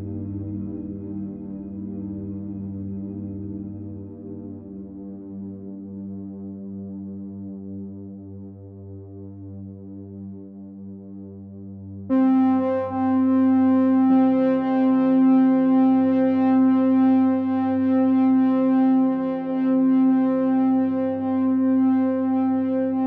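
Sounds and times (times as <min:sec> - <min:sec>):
held synthesizer chords: 0:12.1 - 0:23.0.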